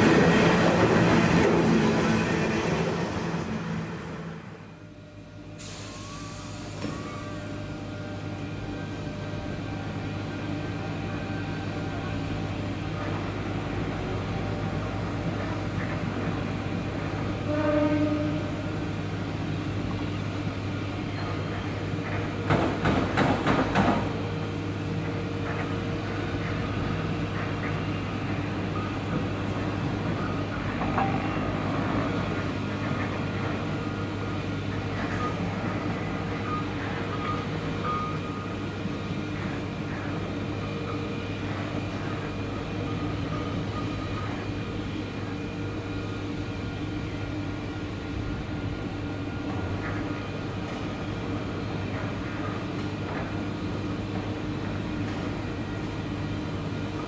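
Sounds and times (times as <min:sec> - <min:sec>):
locomotive engine drone: 0:00.0 - 0:57.0.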